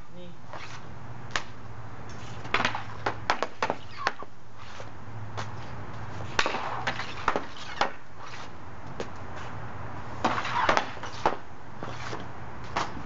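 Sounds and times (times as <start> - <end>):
hockey stick slapping pucks: 2.1 - 4.8, 6.3 - 9.2, 10.2 - 13.0.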